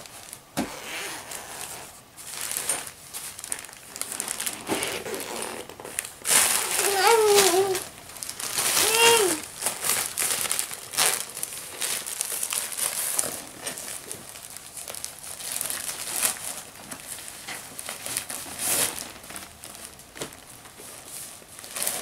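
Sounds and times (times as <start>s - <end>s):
plastic wrapping crinkling: 0.0s - 22.0s.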